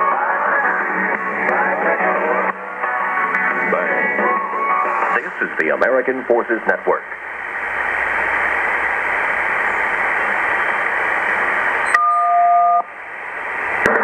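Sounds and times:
shortwave receiver hiss: 0.0s - 14.0s
two-pitch beep: 11.9s - 12.8s.

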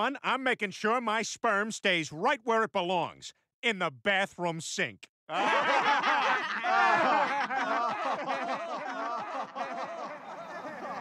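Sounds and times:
group of people laughing: 5.3s - 11.0s.

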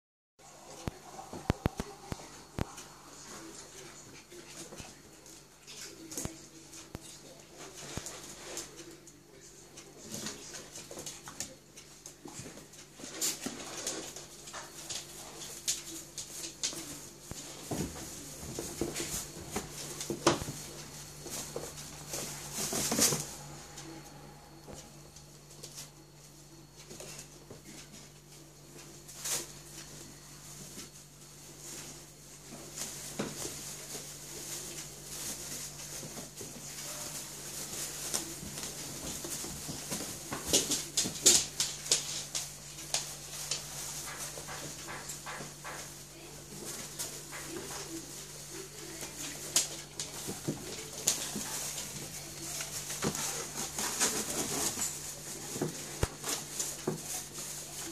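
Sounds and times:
puppy claws clicking on hard floor: 38.0s - 46.1s.

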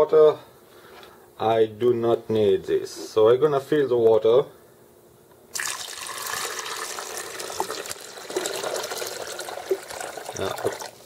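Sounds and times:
water pouring into a tank: 5.5s - 11.0s.

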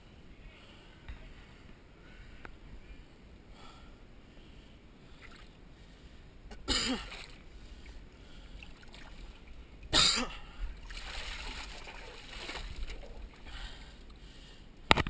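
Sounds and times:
moving water: 5.0s - 14.8s
creek water splashing: 6.9s - 9.9s, 10.7s - 14.2s.

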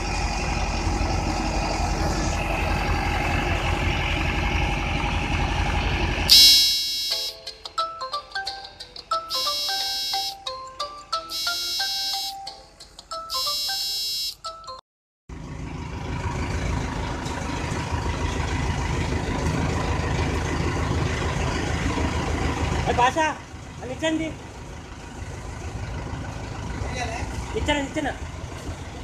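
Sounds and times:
tractor engine running: 0.0s - 14.3s, 15.3s - 29.0s
electronic melody: 6.3s - 14.8s.

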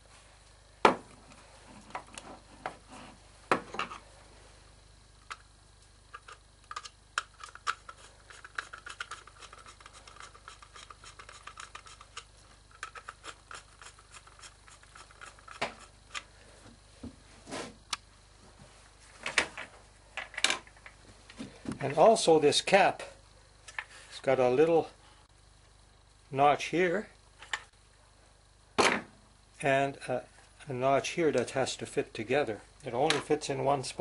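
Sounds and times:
light rubbing and scraping: 1.5s - 4.0s, 17.3s - 17.9s
clicks and knocks of metal and plastic: 19.2s - 21.9s.

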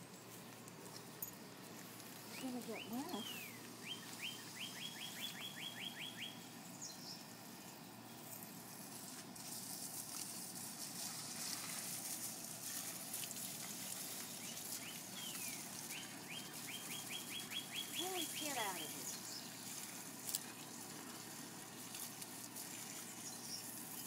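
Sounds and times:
garden hose spraying water: 0.0s - 24.0s
songbird whistling: 2.7s - 7.1s, 14.4s - 19.5s.

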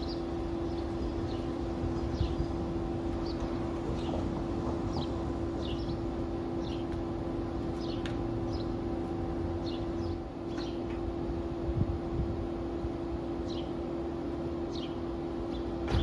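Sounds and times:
birds chirping: 0.0s - 11.1s, 13.3s - 16.0s
mechanical hum: 0.0s - 16.0s.

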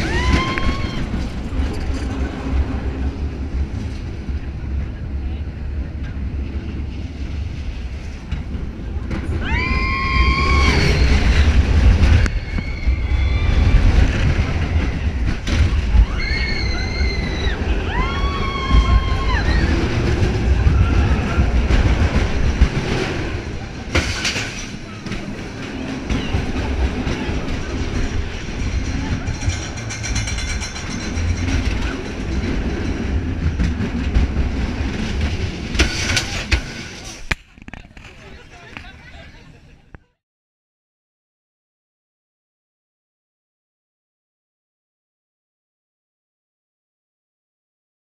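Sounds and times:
riders screaming: 0.0s - 1.2s, 9.4s - 21.6s
roller coaster rumbling on track: 0.0s - 40.2s.

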